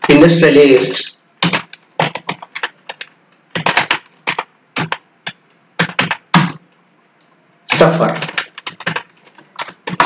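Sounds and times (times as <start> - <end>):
typing on computer keyboard: 1.4 - 6.7, 8.1 - 10.0.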